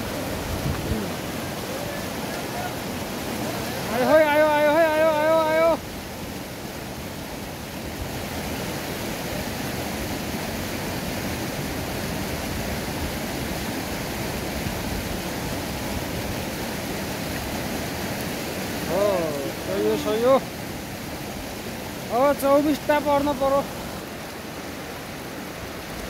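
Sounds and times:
river rushing over boulders: 0.0 - 26.0.

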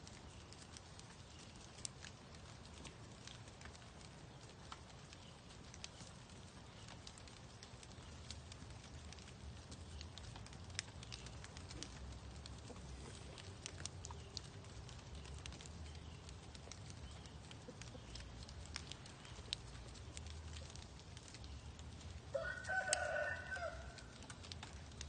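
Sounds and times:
pattering on leaf litter: 5.1 - 25.0.

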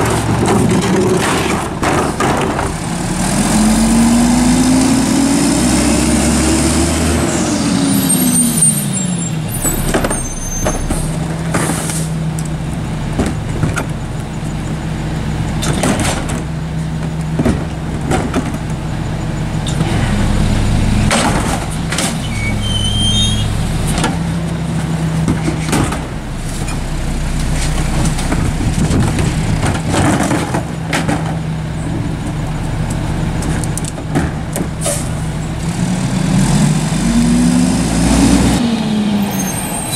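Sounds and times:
bins banging against hopper: 0.0 - 3.1, 9.6 - 12.3, 15.6 - 18.9, 21.0 - 22.6, 23.8 - 32.2, 33.4 - 35.3
garbage truck engine revving: 0.0 - 39.9.

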